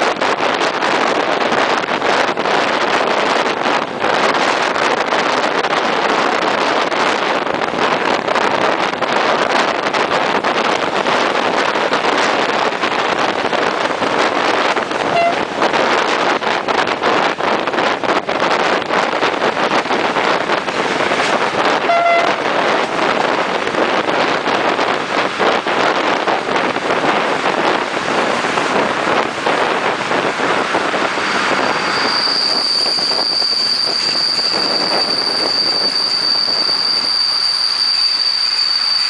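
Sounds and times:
train rolling noise: 0.0s - 39.0s
wind on microphone: 0.0s - 39.0s
train brakes squealing: 15.0s - 15.6s, 21.8s - 23.0s, 31.1s - 39.0s
brief pitched tone: 15.1s - 15.5s, 21.8s - 22.5s.

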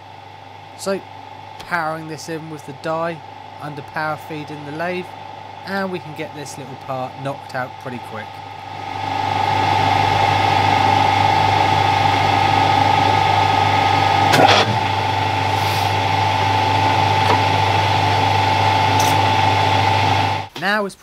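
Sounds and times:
lathe gear whine: 0.0s - 20.5s
die cutting a thread: 14.3s - 14.9s, 18.9s - 19.3s.

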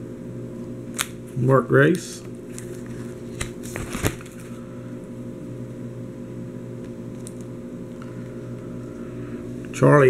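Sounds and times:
low electrical hum: 0.0s - 10.0s
plastic binder page crinkling: 2.5s - 4.6s.

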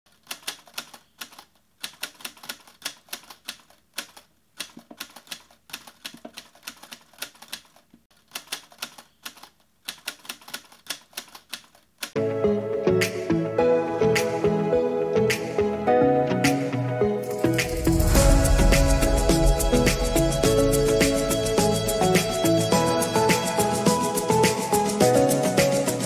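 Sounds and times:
music: 12.2s - 26.0s.

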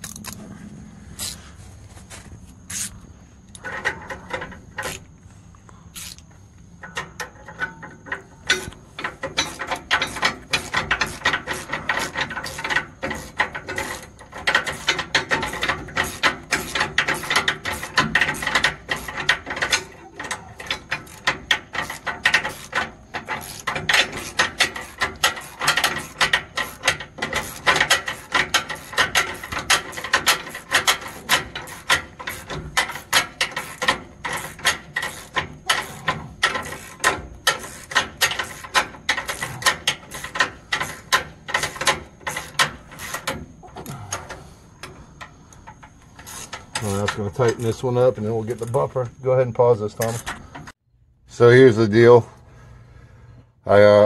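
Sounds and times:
socket ratchet clicking: 6.0s - 43.4s.

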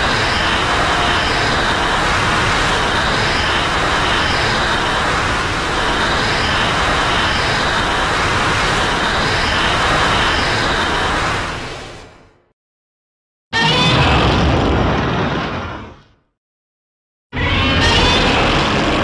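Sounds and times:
rumbling hiss: 0.0s - 11.7s.

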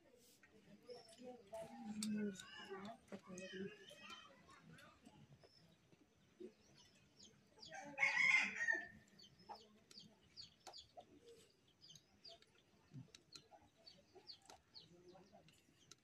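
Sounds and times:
rooster crowing: 7.9s - 8.9s.

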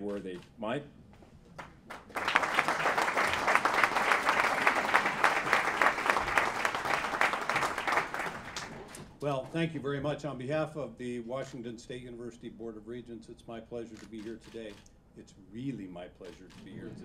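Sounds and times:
audience applauding: 1.6s - 9.0s.

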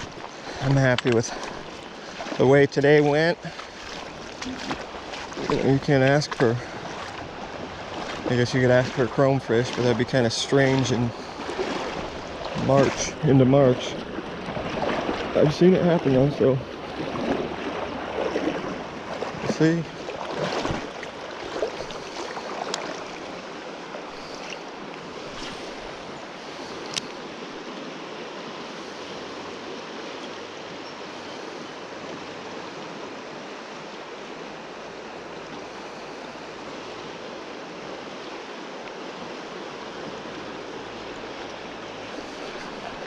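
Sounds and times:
river current flowing: 0.0s - 43.0s
light clicks: 26.8s - 27.2s.

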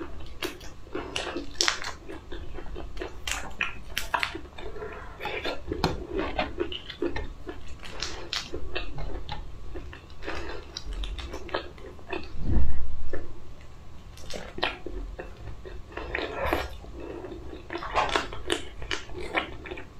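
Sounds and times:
loud low rumble: 12.3s - 13.4s.

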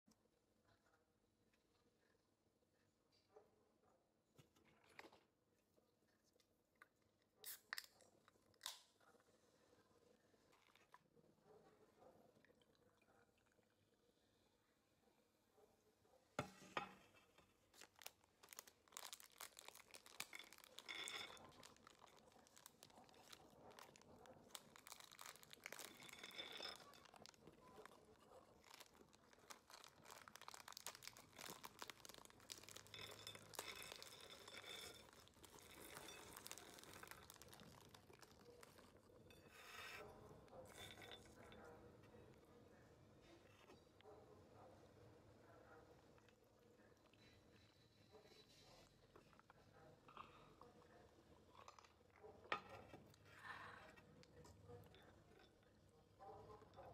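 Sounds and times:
plastic bags crinkling and tearing: 17.7s - 38.8s
nuts rattling onto ceramic plate: 18.5s - 23.4s, 24.6s - 27.4s, 28.6s - 38.3s.

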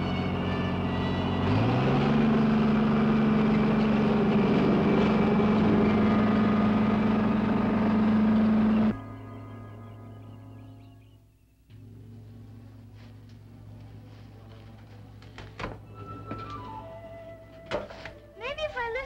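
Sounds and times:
bulldozer engine revving: 0.0s - 11.2s
faint music: 8.7s - 19.0s.

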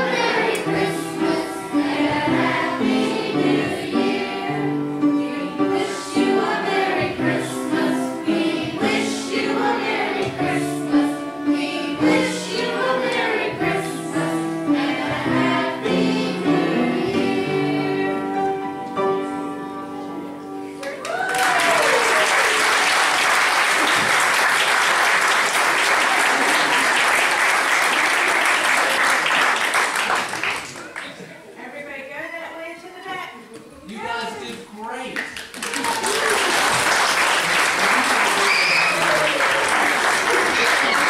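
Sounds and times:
children's choir singing: 0.0s - 18.8s, 36.6s - 41.0s
audience applause: 20.8s - 31.3s, 35.4s - 41.0s.

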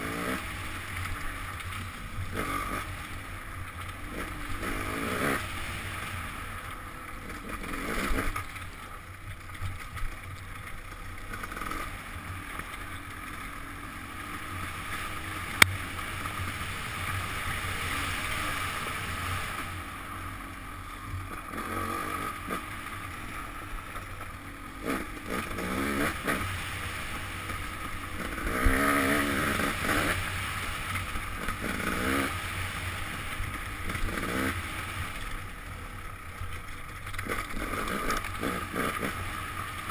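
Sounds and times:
muffled dirt bike engine revving: 0.0s - 39.9s.

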